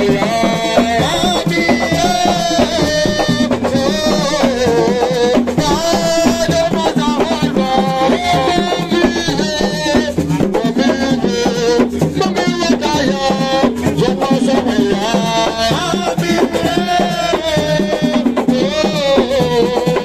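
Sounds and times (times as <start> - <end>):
hand drums playing: 0.0 - 20.0
man singing into microphone: 0.0 - 20.0.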